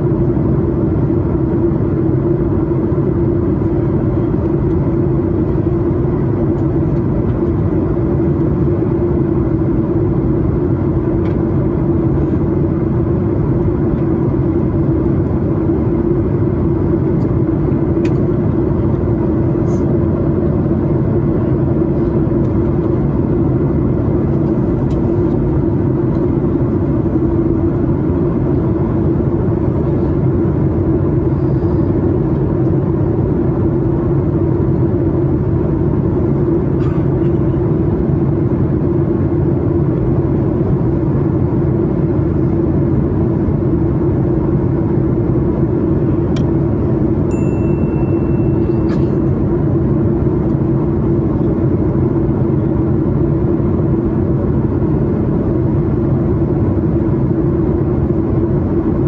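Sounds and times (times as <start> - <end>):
airplane cabin engine rumble: 0.0 - 59.0
high steady tone: 47.3 - 49.0.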